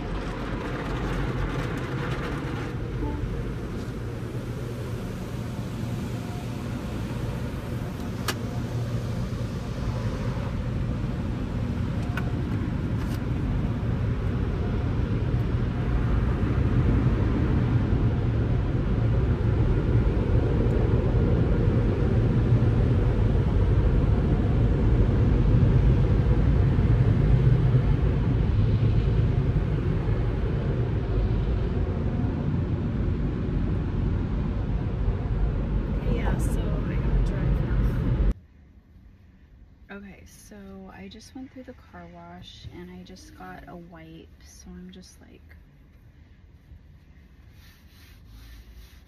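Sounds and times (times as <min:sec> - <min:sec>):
low rumble: 0:00.0 - 0:48.1
car wash water and machinery: 0:00.0 - 0:49.0.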